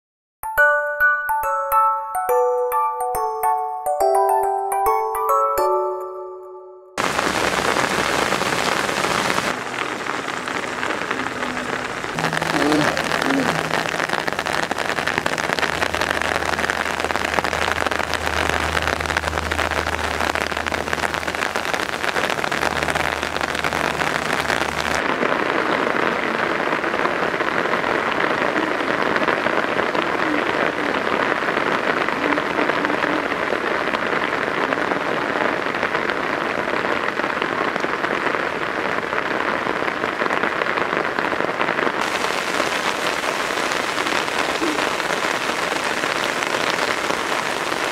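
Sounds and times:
heavy rain on pavement: 7.0s - 47.9s
low steady hum: 9.6s - 25.0s.

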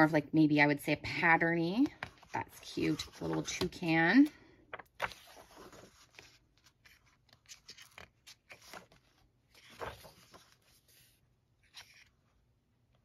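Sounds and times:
paper pages rustling: 1.8s - 3.8s, 4.7s - 12.2s.

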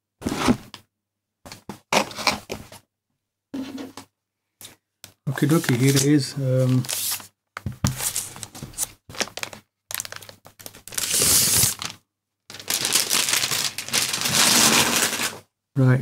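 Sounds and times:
plastic wrapping crinkling: 7.9s - 15.4s.

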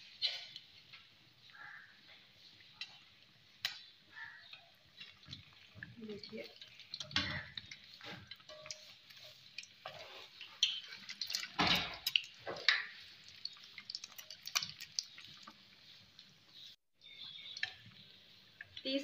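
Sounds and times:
food sizzling in oil: 0.0s - 19.0s
spatula scraping a pan: 6.6s - 11.9s.

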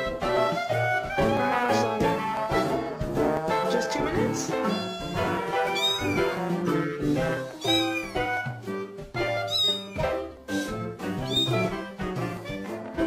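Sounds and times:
background music: 0.0s - 13.0s
cat meowing: 4.5s - 6.4s, 7.5s - 8.4s, 9.4s - 10.2s, 11.2s - 11.7s.

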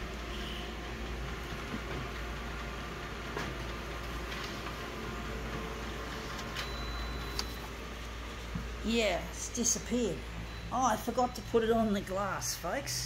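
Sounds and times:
photocopier humming: 0.0s - 12.4s.

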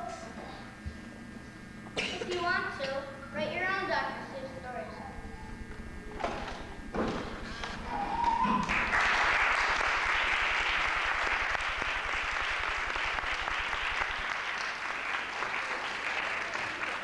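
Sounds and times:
rising tone: 7.4s - 14.2s
audience applauding: 7.6s - 17.0s.

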